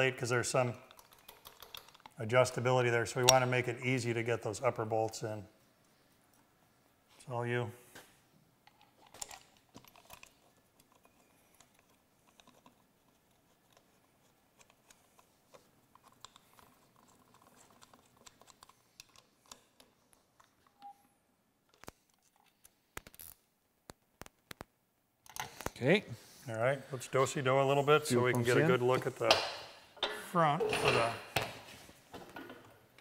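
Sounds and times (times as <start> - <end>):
small metal clicks and taps: 0.8 - 2.2.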